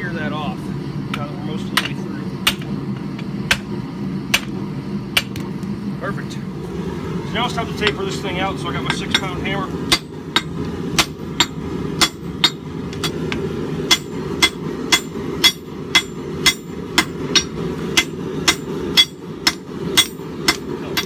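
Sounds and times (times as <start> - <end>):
steady low rumble: 0.0 - 21.0
hammer ringing on anvil: 13.9 - 21.0.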